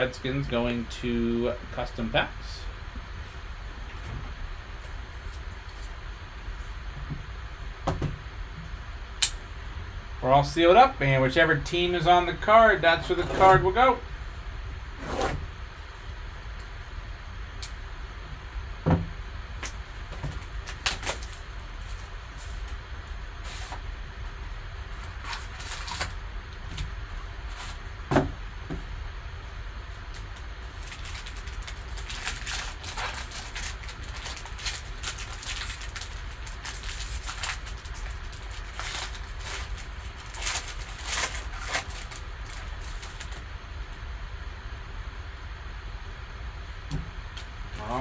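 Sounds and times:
steady low hum: 0:00.0 - 0:48.0
foil wrappers crinkling and tearing: 0:19.6 - 0:22.8, 0:24.9 - 0:26.2, 0:30.1 - 0:43.4.

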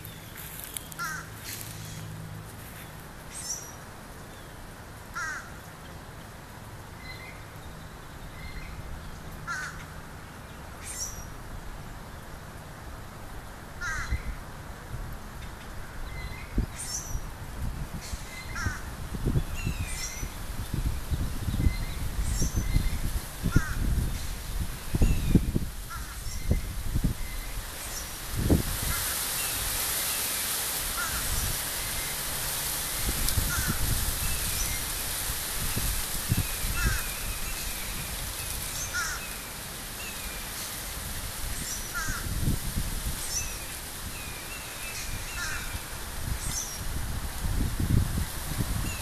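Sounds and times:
small birds chirping: 0:00.0 - 0:04.6
cranes rattling calls: 0:00.9 - 0:02.0, 0:05.2 - 0:05.6, 0:09.5 - 0:10.0, 0:13.8 - 0:14.2, 0:23.5 - 0:23.9, 0:25.9 - 0:26.3, 0:30.9 - 0:31.6, 0:33.4 - 0:34.0, 0:36.7 - 0:37.7, 0:38.7 - 0:39.4, 0:41.9 - 0:42.3, 0:45.2 - 0:45.9.

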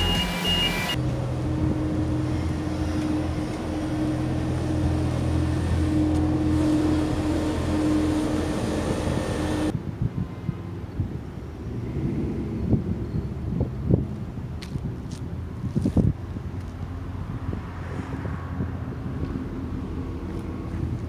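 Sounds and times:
heavy vehicle engine running: 0:00.0 - 0:09.8
street noise: 0:00.0 - 0:21.0.

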